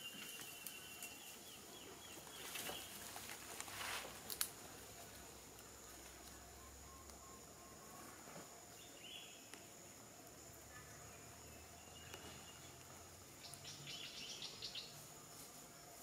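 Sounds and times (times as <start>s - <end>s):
rustling in dry leaves: 0.0s - 6.5s
high insect whine: 0.0s - 16.0s.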